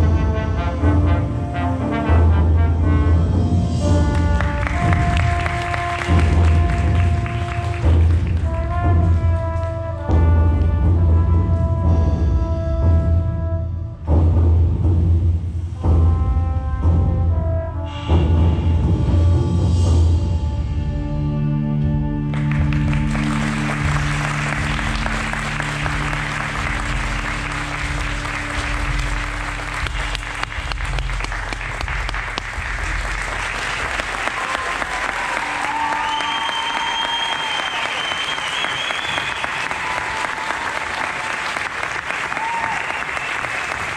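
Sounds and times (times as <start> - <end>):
audience applause: 4.0 - 9.5, 22.3 - 43.9
person whistling: 35.9 - 39.6.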